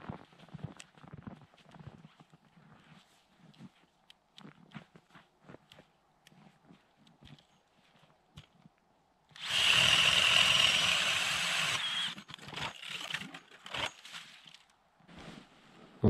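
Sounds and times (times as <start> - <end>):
ice auger grinding scrape: 9.4 - 14.6.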